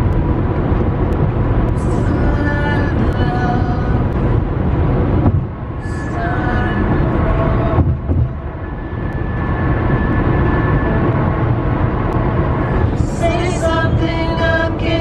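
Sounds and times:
car cabin road noise: 0.0s - 15.0s
song with singing: 1.8s - 4.2s, 5.8s - 8.3s, 12.8s - 15.0s.

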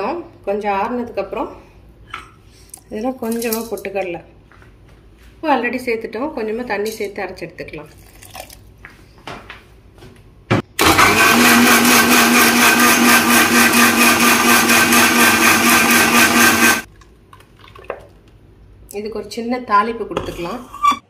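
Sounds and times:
mixer grinder motor humming: 10.8s - 16.9s.

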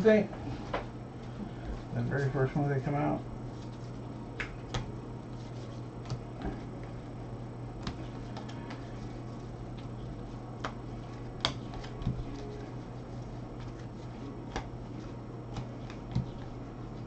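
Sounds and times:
steady low hum: 0.0s - 17.0s
card edges clicking and snapping: 7.8s - 9.0s, 10.6s - 12.6s, 13.6s - 14.7s, 15.5s - 16.6s.

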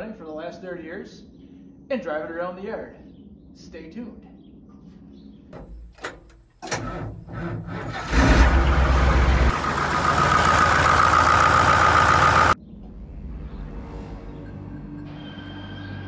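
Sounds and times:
engine cranking and running: 5.6s - 12.6s.

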